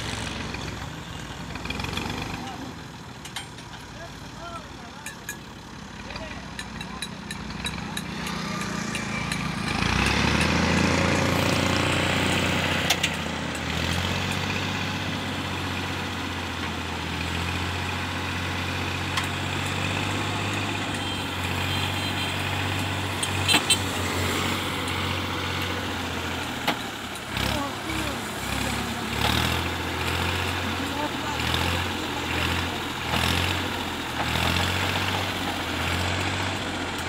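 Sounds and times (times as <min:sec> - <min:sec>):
tractor diesel engine revving: 0:00.0 - 0:37.0.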